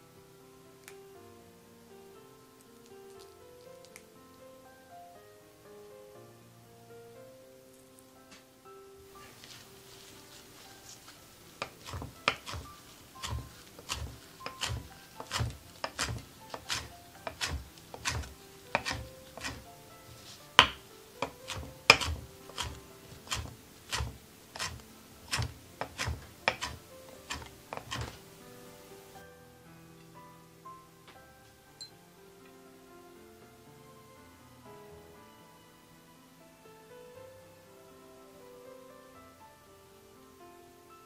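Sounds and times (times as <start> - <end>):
knife chopping herbs on wooden board: 10.9 - 28.2.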